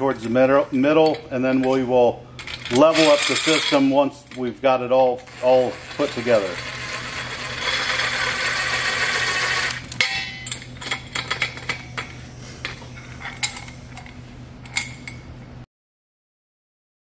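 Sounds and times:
metal parts clinking: 0:02.4 - 0:04.6, 0:05.3 - 0:08.6, 0:09.9 - 0:15.2
impact driver running: 0:05.3 - 0:09.9.

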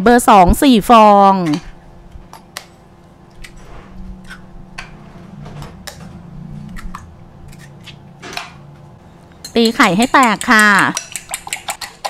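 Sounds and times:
eggshells tapping on glass bowl: 0:09.5 - 0:11.6.

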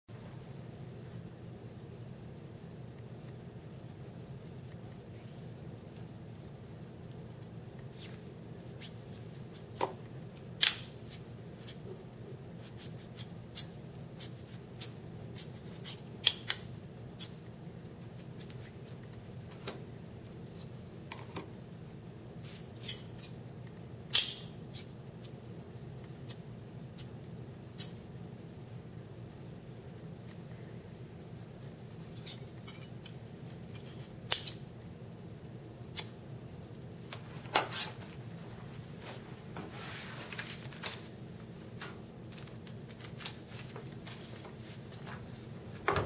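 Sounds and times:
magnets clicking together: 0:24.1 - 0:24.5.

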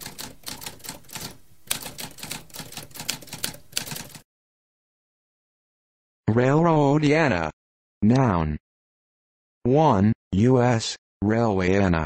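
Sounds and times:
typewriter keys clacking: 0:00.0 - 0:04.2.

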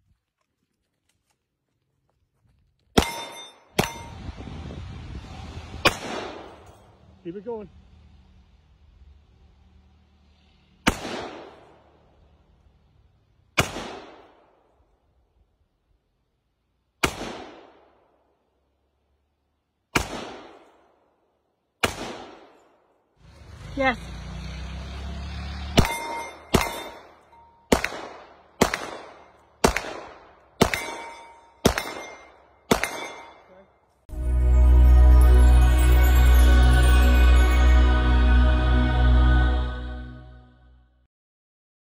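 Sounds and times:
bullets ringing on steel targets: 0:03.0 - 0:04.2, 0:25.8 - 0:27.9, 0:30.6 - 0:33.7
rifle shots with echo: 0:05.9 - 0:06.7, 0:10.9 - 0:11.8, 0:13.6 - 0:14.6, 0:17.0 - 0:18.0, 0:19.9 - 0:20.9, 0:21.8 - 0:22.8, 0:27.7 - 0:33.5
handgun shots echoing: 0:25.8 - 0:27.0, 0:27.7 - 0:33.5.

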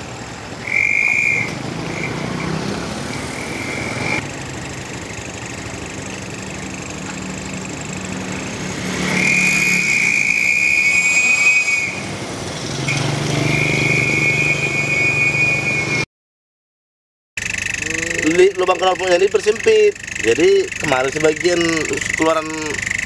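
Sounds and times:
engine running: 0:00.0 - 0:16.0, 0:17.4 - 0:23.0
exhaust whistle: 0:00.6 - 0:04.2, 0:07.2 - 0:12.2, 0:12.8 - 0:16.1, 0:17.4 - 0:23.0.

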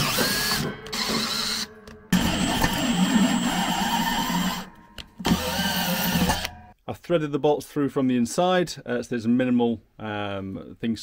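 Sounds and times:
cordless drill boring steel: 0:00.0 - 0:06.5.

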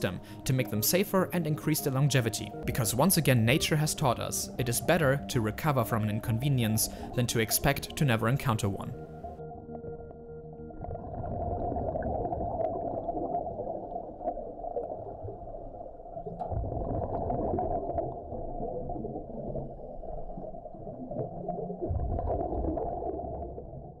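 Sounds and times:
underwater rumbling and gurgling: 0:09.1 - 0:24.0.

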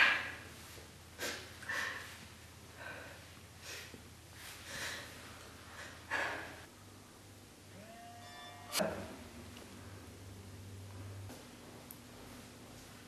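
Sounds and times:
steady high tone: 0:07.7 - 0:09.4.

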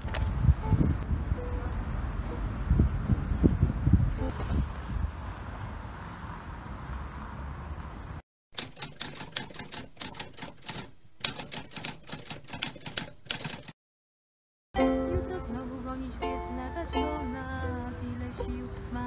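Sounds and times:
traffic noise: 0:00.0 - 0:10.5, 0:14.8 - 0:19.0
wind: 0:00.0 - 0:13.8, 0:14.8 - 0:19.0
typewriter keys clacking: 0:08.6 - 0:13.7.

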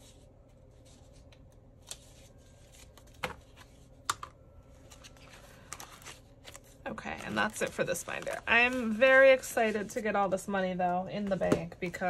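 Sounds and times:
paper rustling: 0:04.8 - 0:10.0.

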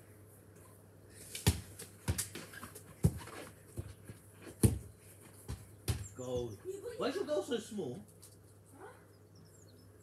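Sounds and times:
football thudding on lawn: 0:01.4 - 0:06.2.

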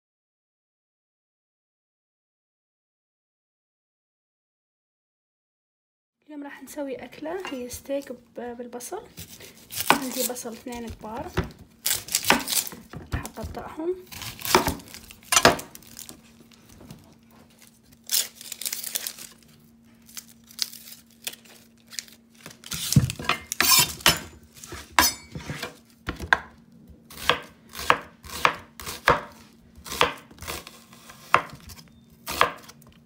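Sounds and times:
knife slicing onions: 0:09.1 - 0:16.1, 0:22.6 - 0:26.5, 0:27.1 - 0:32.8.

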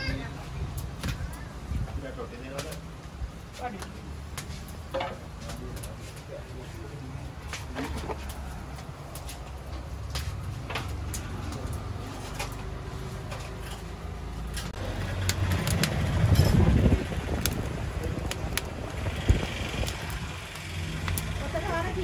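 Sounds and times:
wood fire crackling and popping: 0:00.3 - 0:22.0
steady low rumble: 0:14.8 - 0:22.0.

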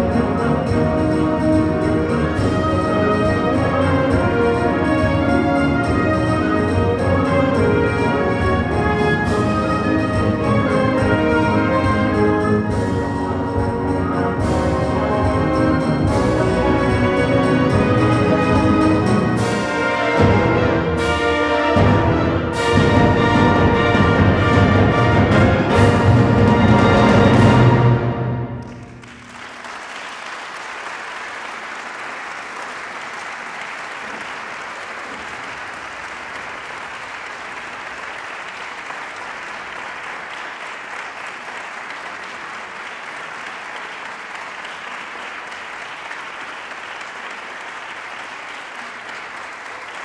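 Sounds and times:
audience applause: 0:28.6 - 0:50.0.

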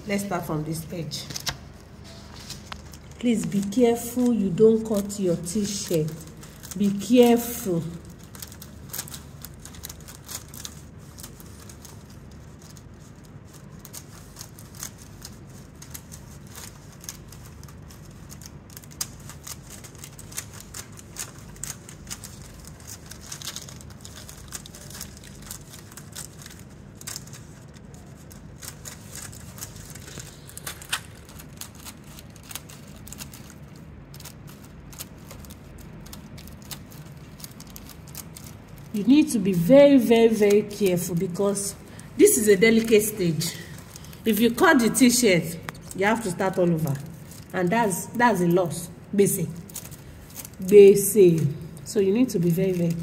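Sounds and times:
plastic film crinkling: 0:00.0 - 0:53.0.

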